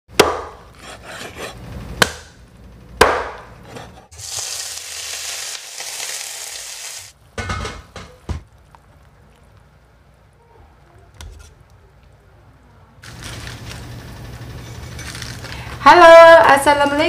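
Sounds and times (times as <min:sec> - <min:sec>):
cleaver chopping on wooden block: 0:00.2 - 0:00.6
food sizzling in hot oil: 0:04.1 - 0:07.2.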